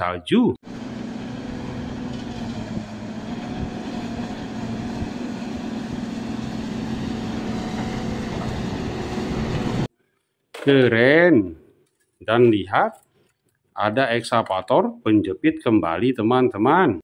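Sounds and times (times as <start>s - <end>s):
diesel engine droning under load: 0.6s - 9.9s.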